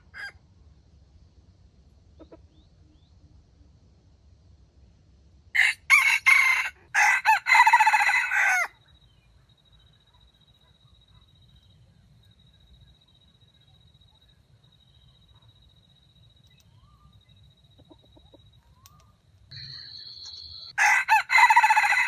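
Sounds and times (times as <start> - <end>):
rooster crowing: 0.0 - 0.4, 5.6 - 8.8, 20.8 - 22.0.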